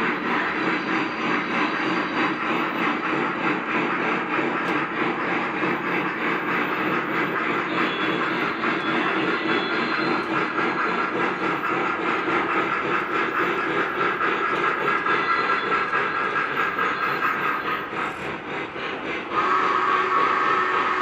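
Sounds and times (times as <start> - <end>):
model train wheels and motors rumbling: 0.0 - 21.0
rapid clicking from rails: 0.0 - 21.0
steam hiss: 0.0 - 21.0.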